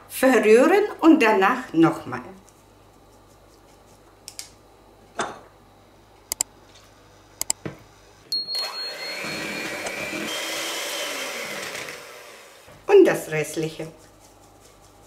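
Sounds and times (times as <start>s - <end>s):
electric hand mixer running: 8.4s - 12.7s.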